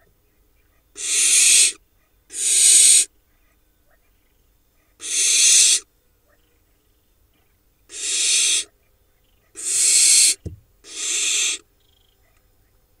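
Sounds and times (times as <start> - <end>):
owl nestlings hissing calls: 1.0 - 3.1, 5.0 - 5.9, 7.9 - 8.7, 9.4 - 11.7.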